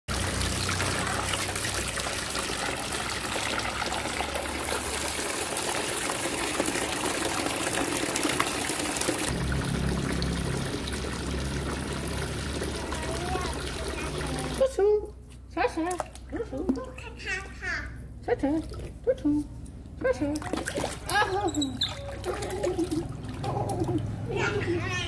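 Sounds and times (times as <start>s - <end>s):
water pouring into plastic tub: 0.1s - 14.6s.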